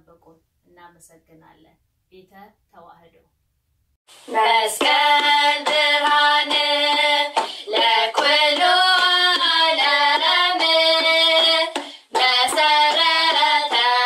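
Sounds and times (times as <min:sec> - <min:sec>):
sharp hand claps: 0:04.7 - 0:14.0.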